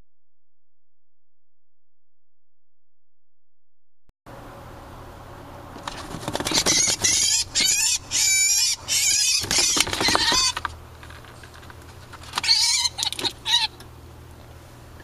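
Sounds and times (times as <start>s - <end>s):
bird distress screeches: 6.3s - 10.6s, 12.4s - 13.8s.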